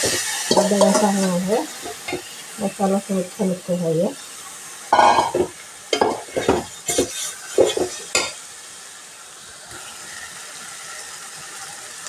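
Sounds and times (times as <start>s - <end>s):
sauce sizzling in a pot: 0.0s - 12.0s
spoon scraping a pot: 5.0s - 8.4s.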